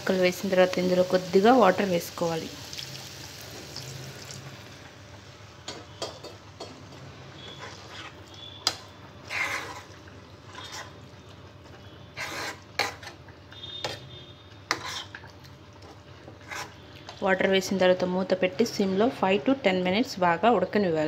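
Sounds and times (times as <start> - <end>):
spatula scraping a pan: 7.4 - 11.1, 11.8 - 15.2, 16.2 - 16.9.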